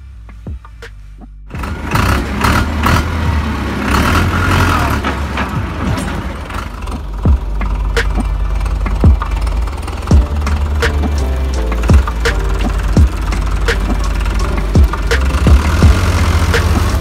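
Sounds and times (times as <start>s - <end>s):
background music: 0.0s - 17.0s
tractor engine rumbling: 0.0s - 17.0s.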